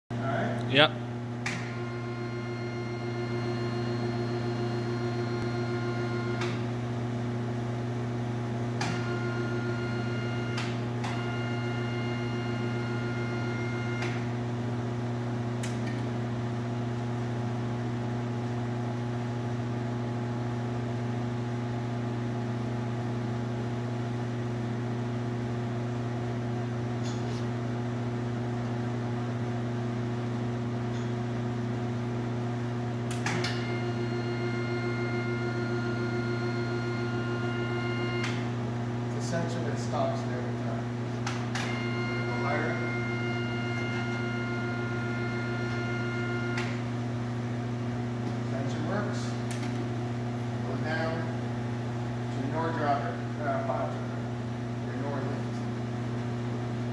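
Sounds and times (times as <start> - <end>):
electric motor hum: 1.5 - 6.9, 8.8 - 14.4, 33.4 - 39.0, 39.6 - 51.3
high whine: 41.6 - 47.0.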